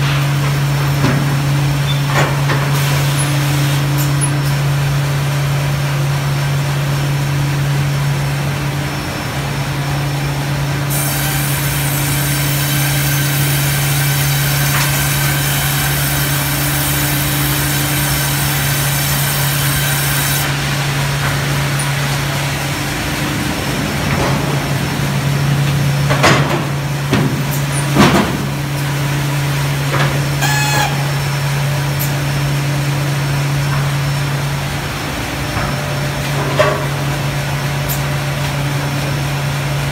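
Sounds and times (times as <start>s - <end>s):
high machine whine: 8.6s - 35.6s
bandsaw machine hum: 9.3s - 35.4s.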